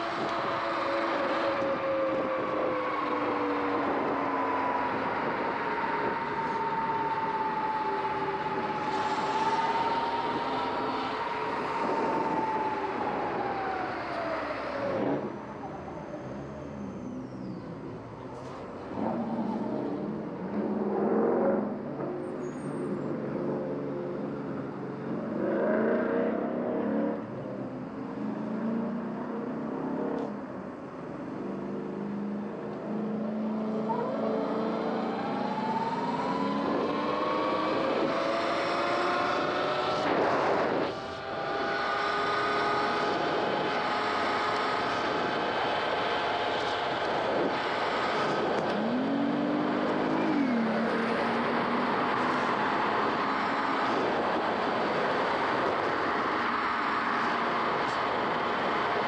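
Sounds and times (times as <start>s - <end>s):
car traffic: 0.0s - 59.0s.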